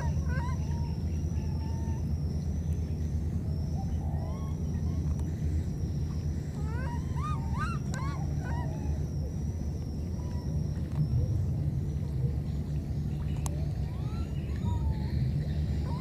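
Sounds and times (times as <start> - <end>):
steady low rumble: 0.0 - 16.0
baby monkey squeaking calls: 6.6 - 8.8.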